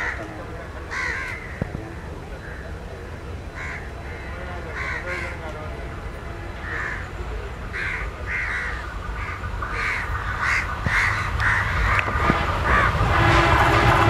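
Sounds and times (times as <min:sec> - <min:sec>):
crows cawing: 0:00.0 - 0:00.3, 0:00.9 - 0:01.8, 0:02.4 - 0:02.7, 0:03.5 - 0:05.6, 0:06.6 - 0:13.0
diesel locomotive rumble: 0:00.0 - 0:14.0.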